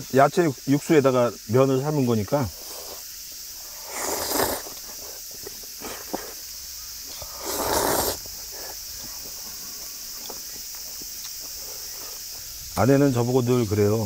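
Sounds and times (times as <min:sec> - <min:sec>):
insects chirring: 0:00.0 - 0:14.0
short breathy noise bursts: 0:02.5 - 0:10.1, 0:11.4 - 0:12.6.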